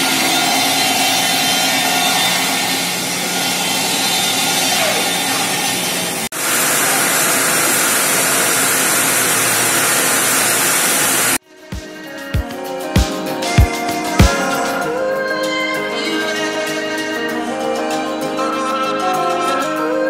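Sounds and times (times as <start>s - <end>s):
sawmill machinery din: 0.0s - 11.4s.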